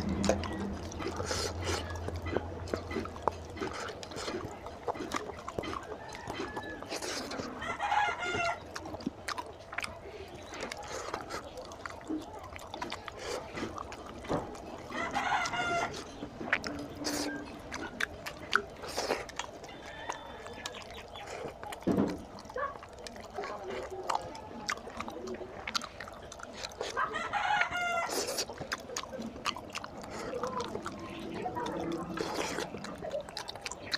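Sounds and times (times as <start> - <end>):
fingers squelching through food: 0.0 - 33.9
wet chewing clicks: 0.0 - 33.9
rooster crowing: 6.0 - 8.6, 14.9 - 16.0, 19.6 - 20.8, 27.0 - 28.2.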